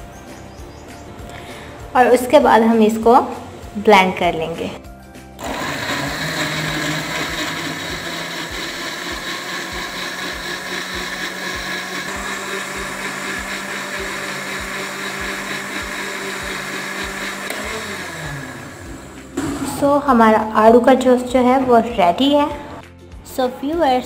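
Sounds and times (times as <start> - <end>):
blender motor whining: 5.4 - 19.4
fruit churning in blender: 5.4 - 19.4.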